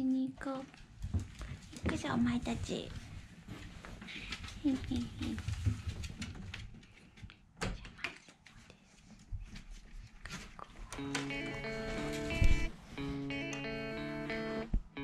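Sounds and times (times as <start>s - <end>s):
footsteps and dog paws on floor: 0.0s - 13.3s
background guitar music: 11.0s - 15.0s.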